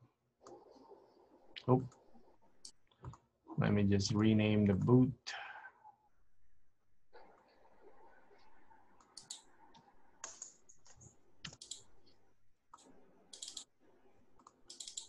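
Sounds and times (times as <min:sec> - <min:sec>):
faint keyboard typing: 0:01.6 - 0:03.3, 0:09.0 - 0:13.7, 0:14.4 - 0:15.0.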